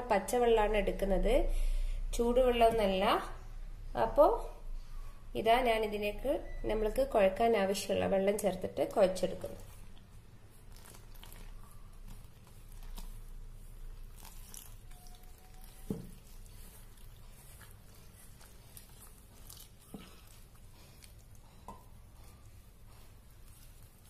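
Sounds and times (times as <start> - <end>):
dough squishing by hand: 5.4 - 24.0.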